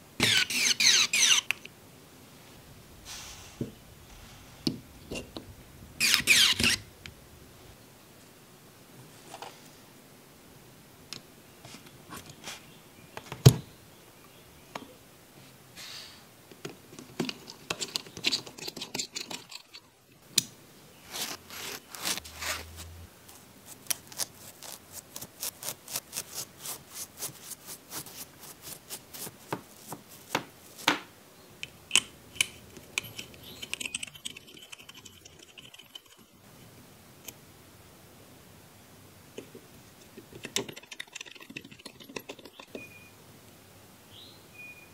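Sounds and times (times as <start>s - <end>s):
small metal parts clicking and tapping: 31.6s - 36.4s, 39.4s - 42.8s.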